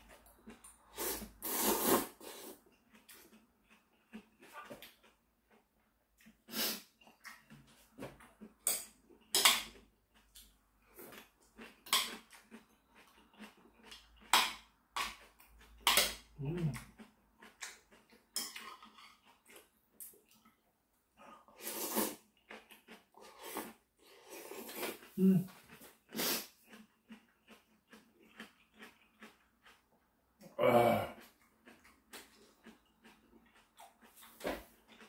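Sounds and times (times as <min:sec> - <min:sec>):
person chewing and slurping noodles: 0:00.0 - 0:35.0.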